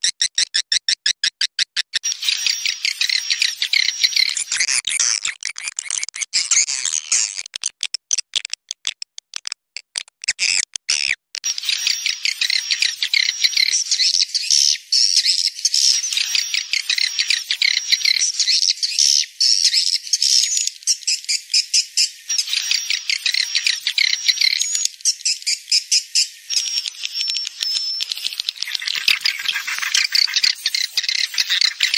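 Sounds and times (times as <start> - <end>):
swiftlets twittering: 11.5 - 31.9.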